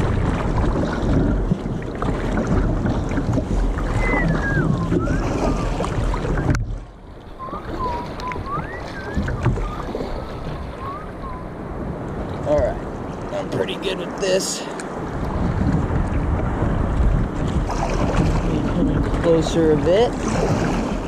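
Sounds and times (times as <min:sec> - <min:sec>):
paddle strokes in water: 0:00.0 - 0:21.0
water washing along kayak: 0:00.0 - 0:21.0
wind on microphone: 0:00.0 - 0:21.0
wavering whistle-like tones: 0:03.8 - 0:06.6, 0:07.3 - 0:11.6.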